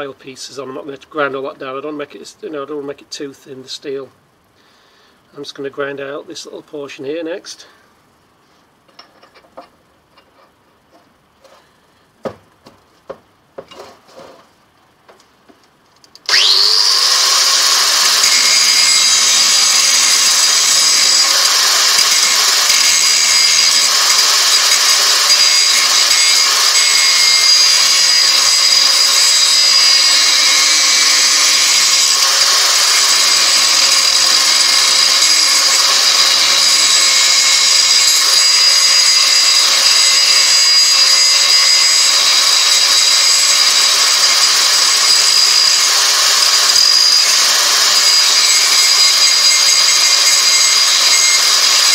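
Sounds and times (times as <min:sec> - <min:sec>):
angle grinder grinding steel: 0:16.3 - 0:51.9.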